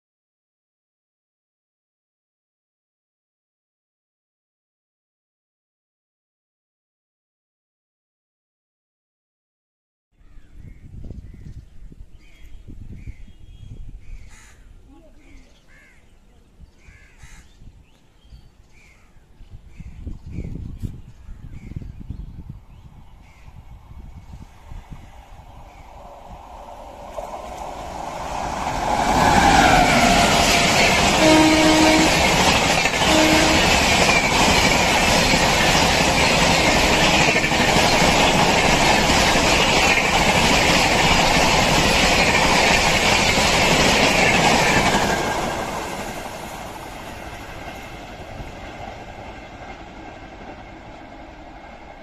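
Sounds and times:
train passing at high speed: 22.2s - 52.0s
train horn notes: 29.1s - 34.1s.

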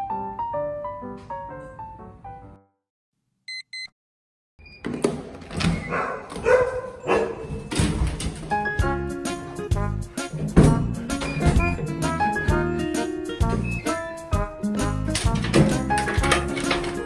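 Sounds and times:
piano music: 0.0s - 2.8s, 6.4s - 17.0s
electronic door lock beeps: 3.5s - 3.9s, 4.6s - 5.0s, 13.6s - 14.0s
dog barking loudly: 5.9s - 7.5s.

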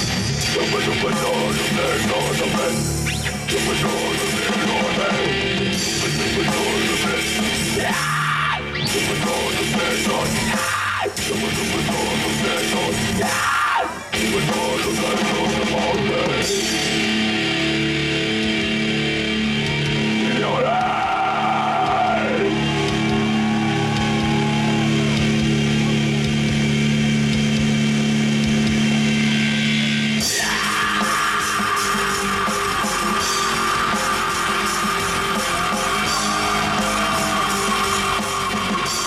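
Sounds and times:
bass guitar: 0.0s - 39.0s
drums: 0.0s - 39.0s
electric guitar: 0.0s - 39.0s
person singing long notes: 30.2s - 39.0s.

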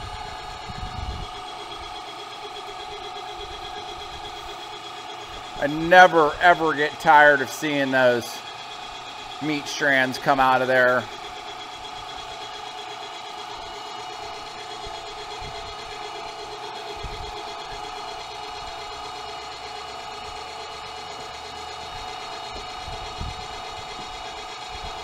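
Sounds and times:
electric meat grinder running: 0.0s - 25.0s.

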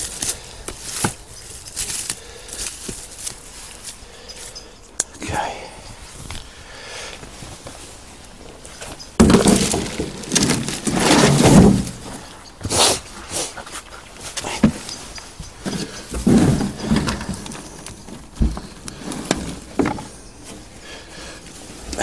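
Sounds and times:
hands rustling and scraping soil: 0.0s - 22.0s
dull thuds: 9.2s - 12.7s, 15.4s - 20.2s.

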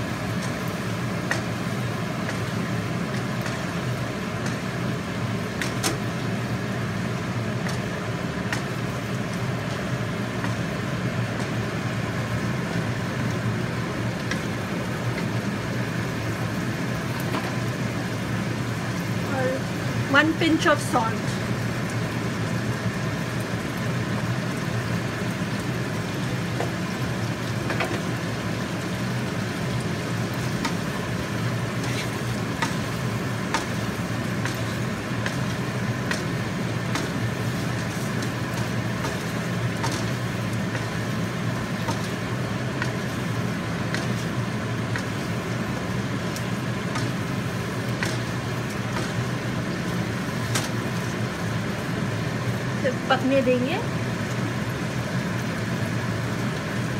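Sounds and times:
chicken and onions sizzling: 0.0s - 56.9s
steady low hum: 0.0s - 56.9s
wooden spatula scraping a pan: 31.7s - 32.8s.

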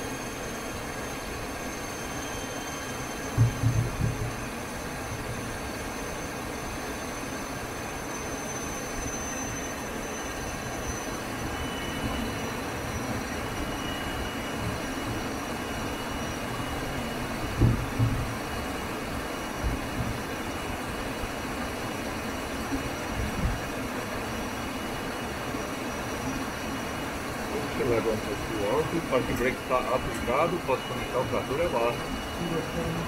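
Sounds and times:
turboprop engine idling: 10.3s - 33.0s.

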